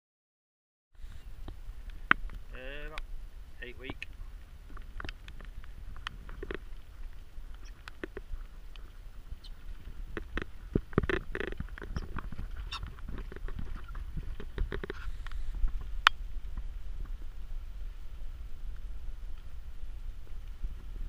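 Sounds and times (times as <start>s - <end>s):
birds tapping and scraping crates: 4.7s - 15.9s.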